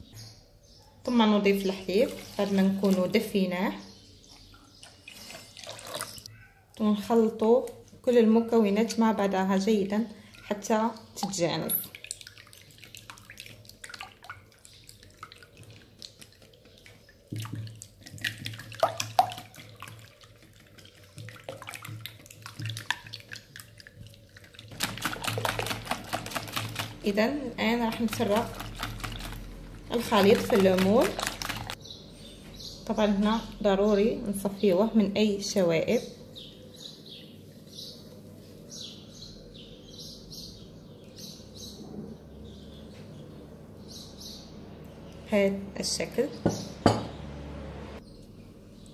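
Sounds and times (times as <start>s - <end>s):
small birds chirping: 0.0s - 24.4s, 25.4s - 47.3s, 48.0s - 48.9s
liquid sloshing: 1.4s - 3.5s, 4.3s - 6.3s, 10.2s - 31.8s
whisk clicking against glass bowl: 24.8s - 27.1s, 27.8s - 31.8s.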